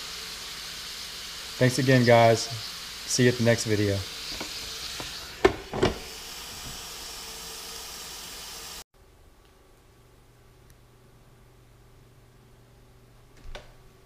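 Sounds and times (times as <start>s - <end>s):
fish sizzling on a grill: 0.0s - 8.8s.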